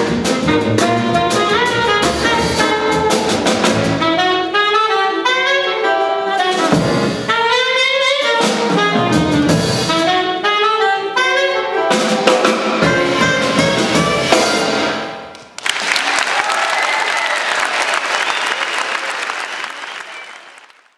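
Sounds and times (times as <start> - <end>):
saxophone: 0.0 - 14.8
jazz quartet playing: 0.0 - 15.2
audience applause: 15.6 - 20.9.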